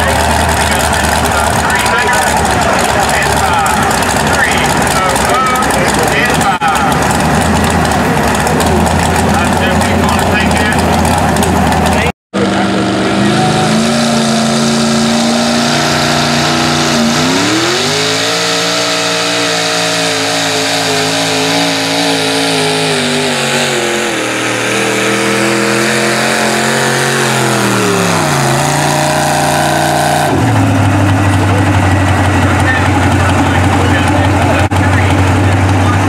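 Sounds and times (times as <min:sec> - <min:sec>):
tractor engine revving under load: 0:00.0 - 0:36.0.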